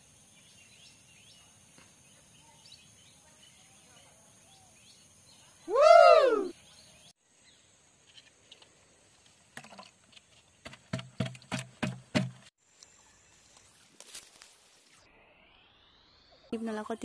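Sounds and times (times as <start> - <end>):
high insect hum: 0.0 - 10.9
animal call rising and falling: 5.7 - 6.5.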